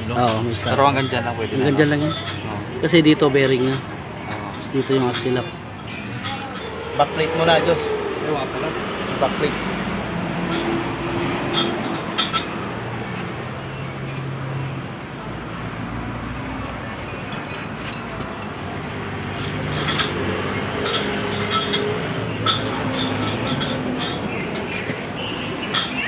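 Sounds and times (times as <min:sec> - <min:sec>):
rumbling background: 0:03.8 - 0:12.5
low hum drifting in pitch: 0:05.5 - 0:12.9
metallic clinks and taps: 0:17.3 - 0:20.2, 0:20.8 - 0:24.7.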